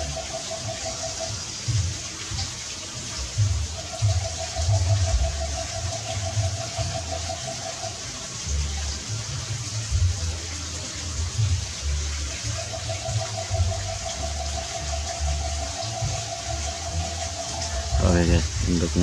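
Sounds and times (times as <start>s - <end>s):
low rumbles: 15.3s - 19.0s.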